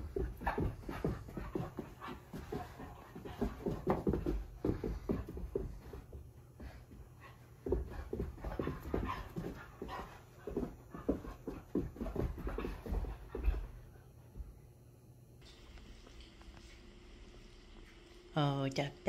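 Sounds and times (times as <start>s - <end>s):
puppy panting: 0.0s - 13.7s.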